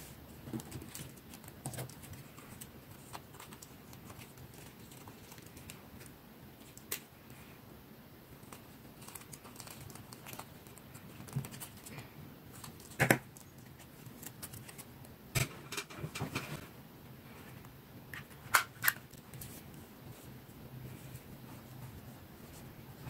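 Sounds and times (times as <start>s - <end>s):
tape crinkling: 0.3s - 7.3s, 8.4s - 15.1s.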